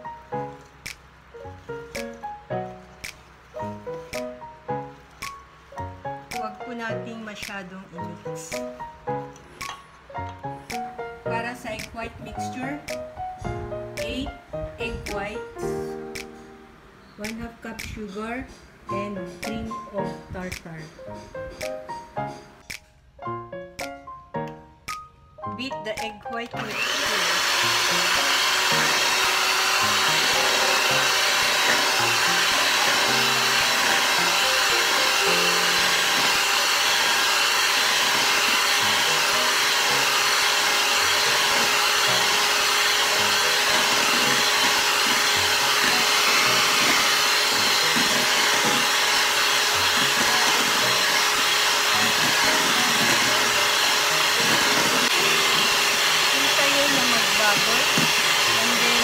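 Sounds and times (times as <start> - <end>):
electric hand mixer whipping: 26.6 - 59.0.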